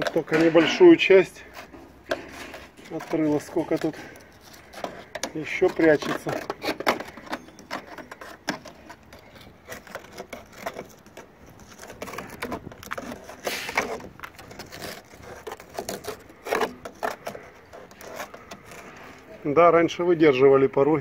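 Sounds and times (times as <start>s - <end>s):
metal strip scraping: 0.0s - 19.4s.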